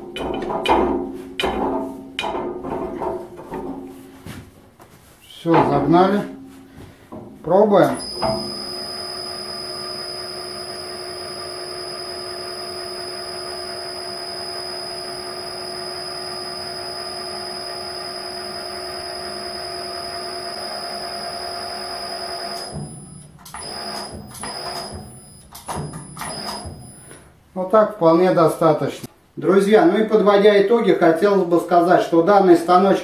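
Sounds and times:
motor whining: 8.0s - 27.2s.

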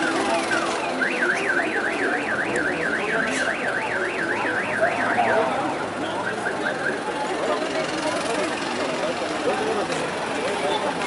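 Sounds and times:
car alarm chirps and warble: 0.0s - 7.3s.

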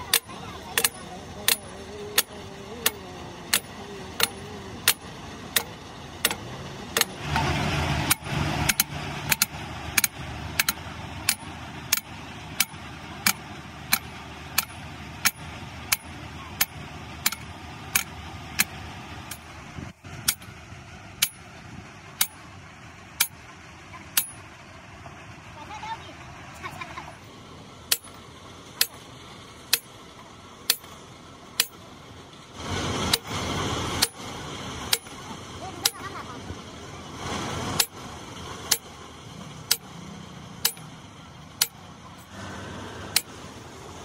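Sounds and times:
sledgehammer on steel: 0.0s - 22.5s, 23.1s - 24.5s, 27.9s - 28.2s, 28.8s - 29.0s, 29.7s - 30.0s, 30.6s - 31.0s, 31.6s - 31.9s, 32.9s - 36.2s, 37.4s - 38.0s, 38.6s - 38.9s, 39.6s - 40.0s, 40.6s - 41.0s, 41.6s - 42.4s, 43.1s - 43.4s
loud rumbling noise: 0.0s - 44.0s.

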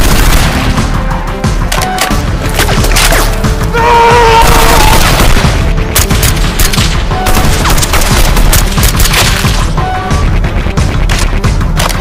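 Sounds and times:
background music: 0.0s - 12.0s
gunfire bursts: 4.5s - 9.7s.

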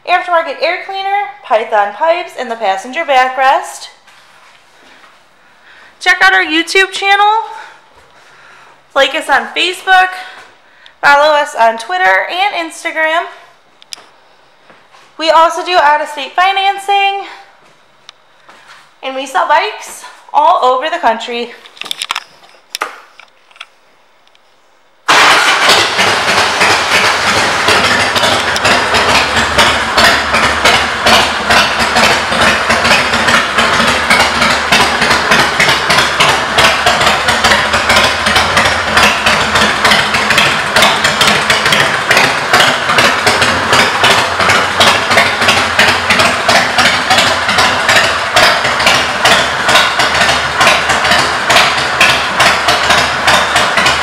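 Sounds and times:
motorcycle engine running: 0.0s - 5.1s, 5.7s - 13.6s, 25.1s - 54.0s.

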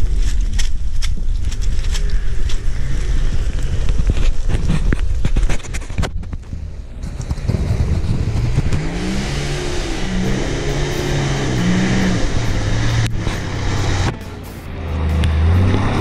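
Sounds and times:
car engine revving: 7.0s - 16.0s.

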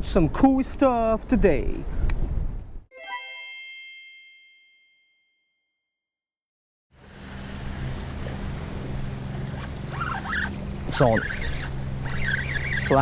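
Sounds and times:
bell-like chime: 2.9s - 5.7s.

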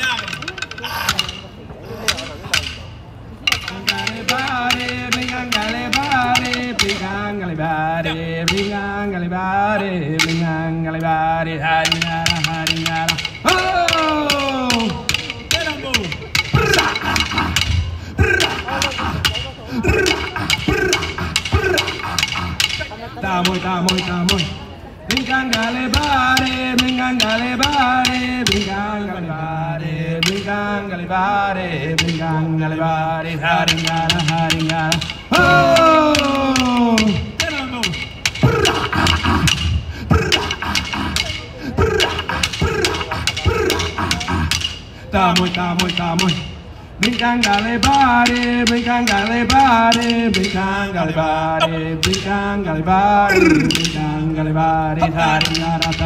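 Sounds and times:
sharp stick clicks: 0.0s - 7.4s, 8.3s - 9.0s, 10.1s - 28.9s, 30.2s - 30.7s, 32.0s - 32.4s, 33.5s - 52.6s, 53.2s - 56.0s
man chanting a song: 25.7s - 56.0s
clapstick strikes: 33.7s - 44.8s, 53.3s - 54.3s, 55.0s - 56.0s
man chanting long notes: 35.3s - 37.8s.

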